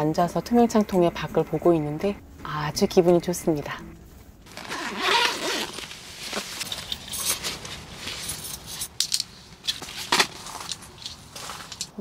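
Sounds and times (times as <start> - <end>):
rustling: 4.2 - 12.0.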